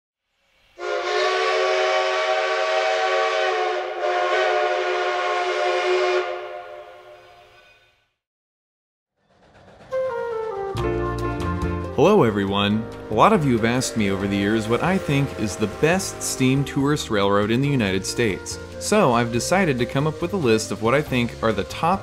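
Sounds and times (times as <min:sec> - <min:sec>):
steam locomotive whistle: 0:00.8 - 0:08.0, 0:12.0 - 0:22.0
steam hissing: 0:12.9 - 0:22.0.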